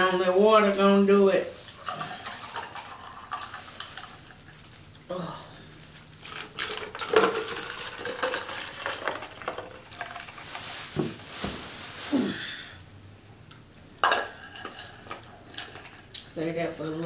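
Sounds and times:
small clicks and crackles: 3.3s - 11.0s.

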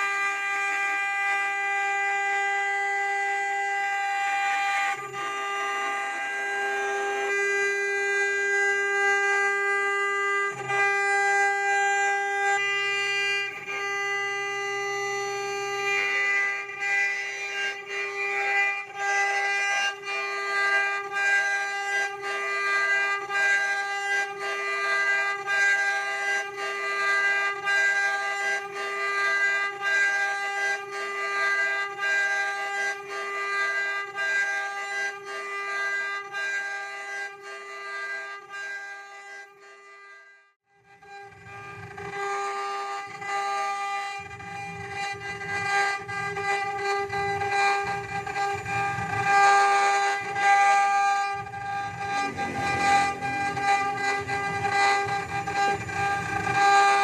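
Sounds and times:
wood router whining: 0.0s - 57.0s
regular pulse: 45.7s - 57.0s.

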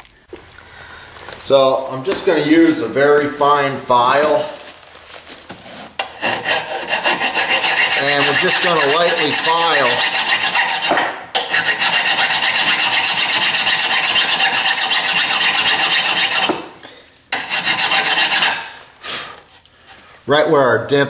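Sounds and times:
metal file rasping on bolt: 6.0s - 16.6s, 17.3s - 18.7s.

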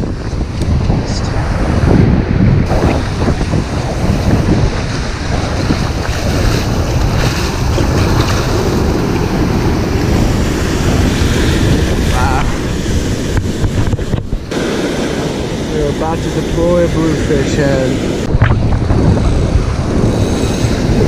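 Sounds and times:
wind buffeting microphone: 0.0s - 21.0s
breaking surf: 1.4s - 21.0s.

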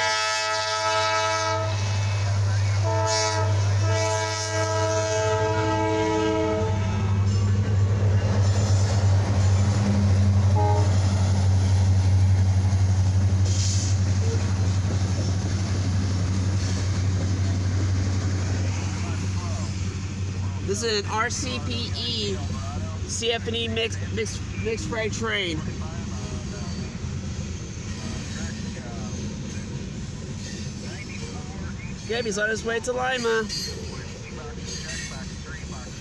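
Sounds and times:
locomotive air horn blasts: 0.0s - 2.0s, 2.8s - 7.2s, 10.5s - 11.1s
train rumbling past: 0.0s - 36.0s.

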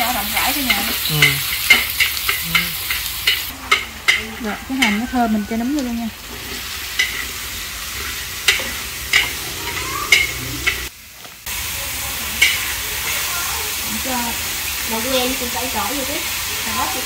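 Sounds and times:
vegetables sizzling in hot oil: 0.0s - 17.0s
utensil knocking against wok: 0.5s - 5.2s, 8.4s - 10.9s.

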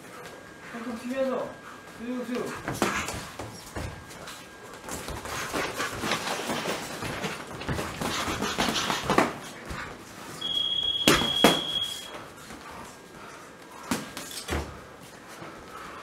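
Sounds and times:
boxing footwork scuffing: 2.5s - 10.0s
high electronic beep: 10.4s - 12.1s.

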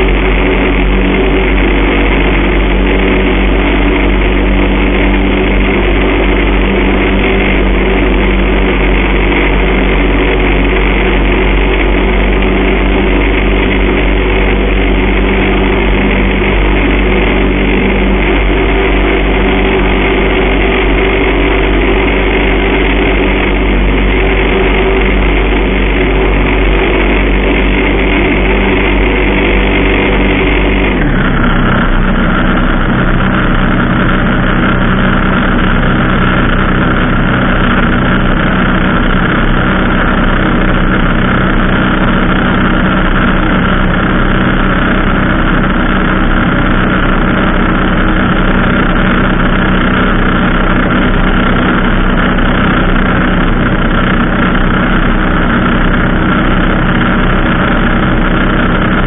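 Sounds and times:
aeroplane engine droning: 0.0s - 59.0s.

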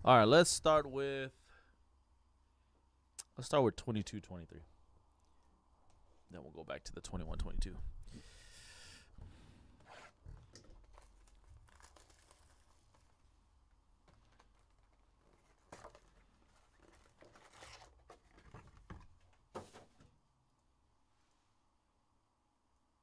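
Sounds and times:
foil packs crinkling: 10.1s - 19.4s
cardboard box tearing: 10.9s - 13.2s, 15.3s - 18.4s.

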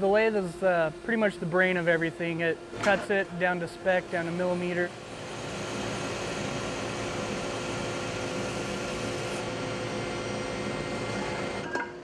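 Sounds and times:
lathe cutting wood: 4.9s - 11.6s.

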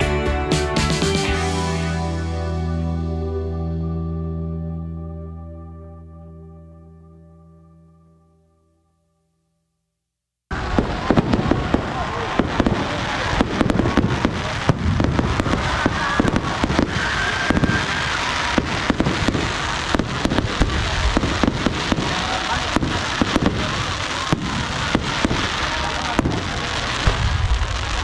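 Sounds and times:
crowd voices: 10.5s - 28.0s
fireworks bangs and crackling: 10.5s - 28.0s.

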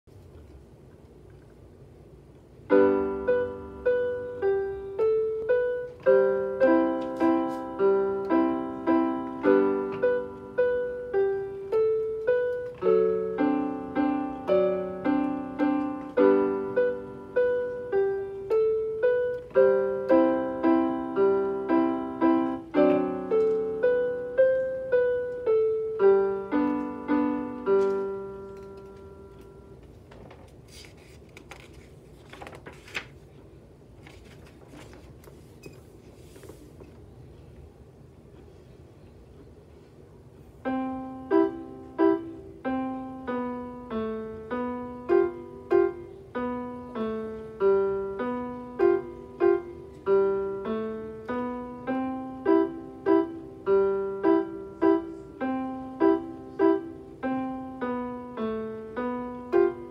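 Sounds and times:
electronic keyboard piano piece: 2.5s - 30.1s, 40.5s - 59.9s.

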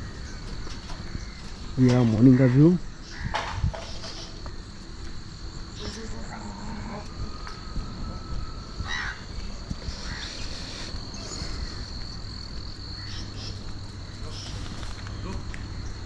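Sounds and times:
high-pitched insect drone: 0.0s - 16.0s.

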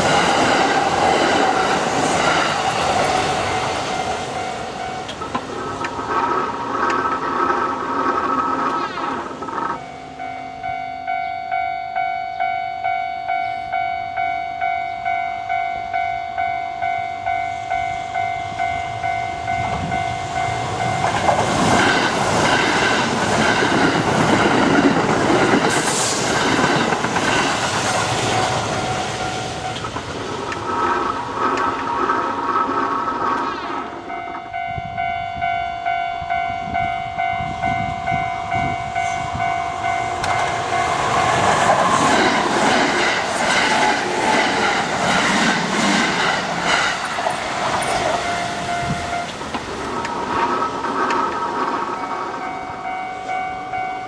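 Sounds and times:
trains rumbling over crossing: 0.0s - 54.0s
level crossing bells ringing: 2.7s - 5.3s, 9.6s - 21.4s, 34.0s - 41.5s, 47.4s - 49.5s, 51.8s - 54.0s.

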